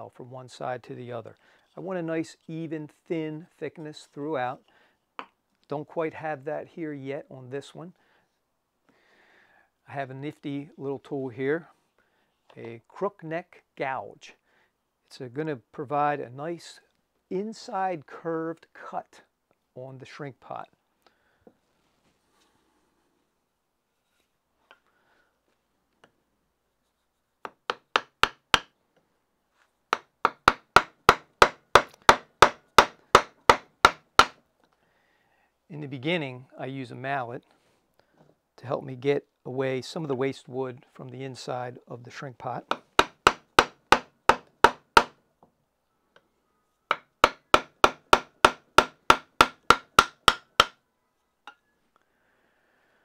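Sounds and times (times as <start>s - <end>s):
wooden mallet striking gouge: 27.4s - 28.7s, 29.9s - 34.4s, 42.7s - 45.2s, 46.9s - 50.8s.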